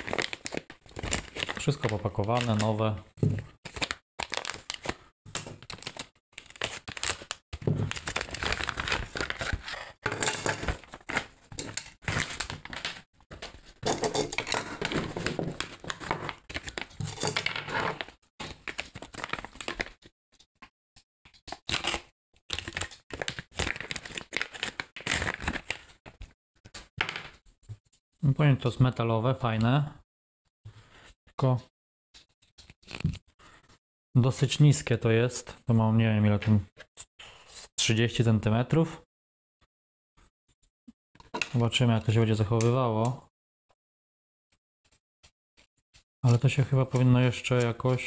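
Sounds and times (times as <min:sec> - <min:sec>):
plastic wrapping crinkling and tearing: 0:00.0 - 0:02.8, 0:03.7 - 0:20.1, 0:21.5 - 0:26.0.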